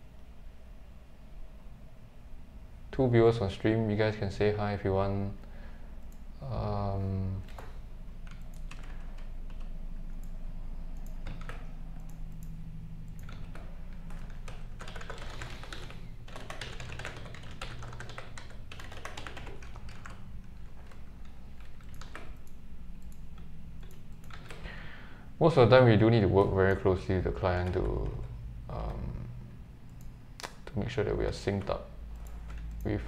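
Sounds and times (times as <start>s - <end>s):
low steady hum: 0.0s - 33.0s
keyboard typing: 7.4s - 24.7s.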